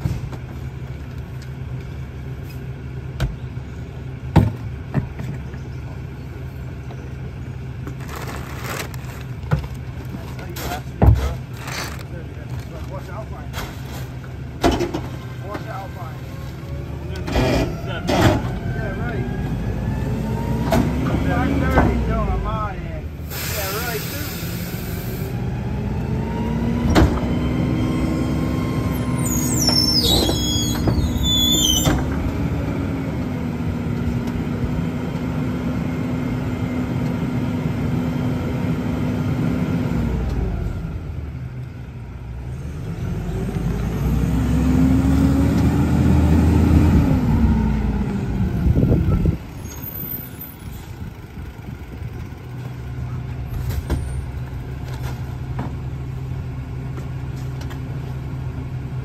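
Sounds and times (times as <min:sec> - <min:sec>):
garbage truck engine revving: 0:10.5 - 0:41.4, 0:42.4 - 0:51.3
high metal squealing: 0:28.9 - 0:32.0.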